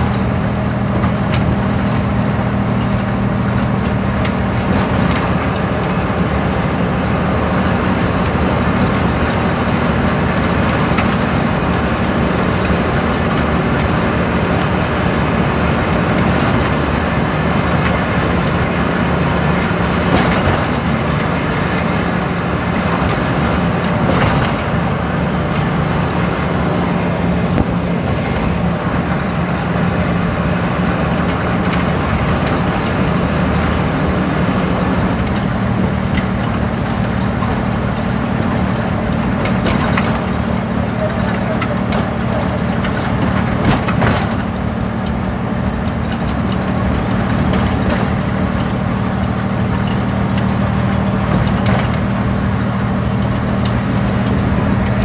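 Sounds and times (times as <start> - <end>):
tyre and wind noise: 0.0 - 40.9
low engine hum: 0.0 - 55.0.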